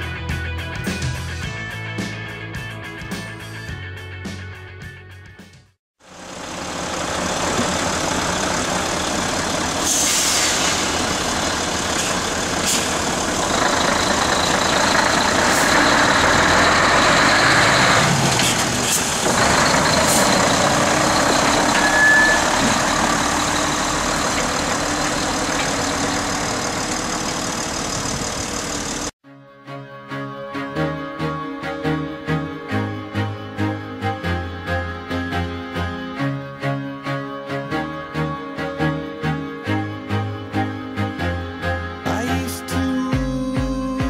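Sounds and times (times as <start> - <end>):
truck diesel engine running: 6.0 - 29.2
brief air hiss: 9.8 - 11.0.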